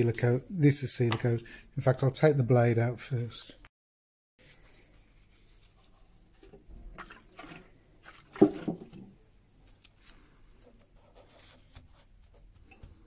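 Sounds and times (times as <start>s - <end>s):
liquid and rustling noises: 4.4s - 13.0s.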